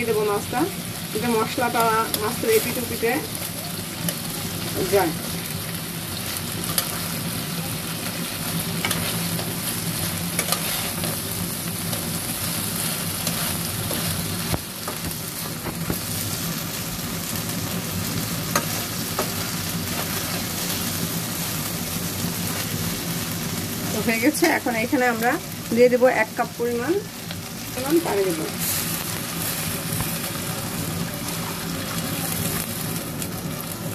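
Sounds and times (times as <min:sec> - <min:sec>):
fish sizzling in a pan: 0:00.0 - 0:33.9
metal spatula scraping a pan: 0:08.8 - 0:11.2.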